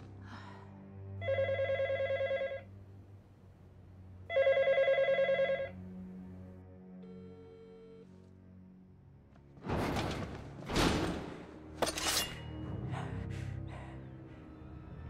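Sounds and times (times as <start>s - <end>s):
soft background music: 0.0s - 15.0s
electronic telephone ringing: 1.2s - 2.7s, 4.3s - 5.8s.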